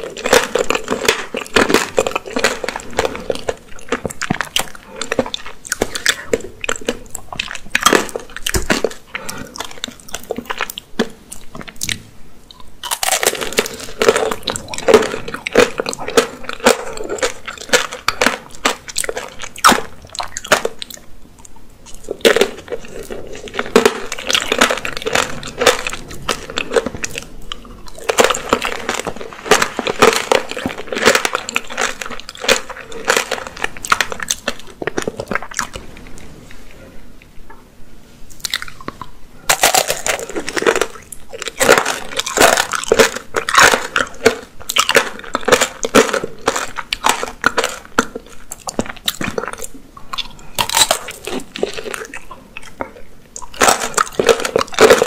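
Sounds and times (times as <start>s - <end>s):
candy shell crunching: 0.0s - 11.8s, 12.6s - 21.1s, 21.9s - 36.1s, 38.4s - 55.0s.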